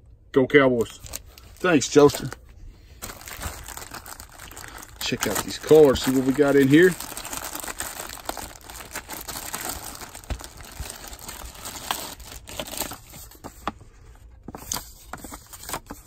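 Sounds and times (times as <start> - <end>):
plastic bag crinkling: 1.0 - 13.4.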